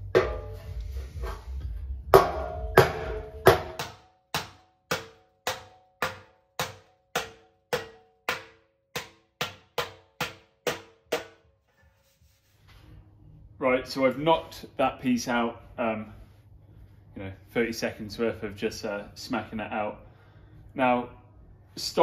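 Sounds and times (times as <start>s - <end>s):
steel dolly striking metal panel: 0.0s - 0.8s, 2.1s - 11.4s.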